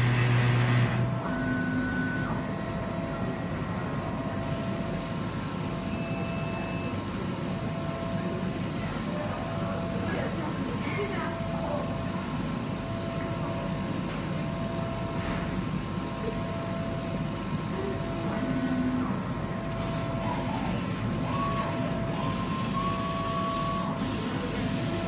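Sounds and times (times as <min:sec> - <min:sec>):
machine hum with whine: 0:00.0 - 0:08.4.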